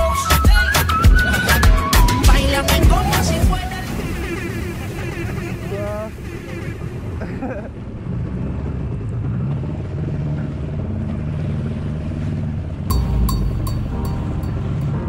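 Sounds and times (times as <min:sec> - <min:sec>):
music with thumping beat: 0:00.0 - 0:03.6, 0:12.9 - 0:15.0
jet ski engine running: 0:00.0 - 0:15.0
water rushing along hull: 0:00.0 - 0:15.0.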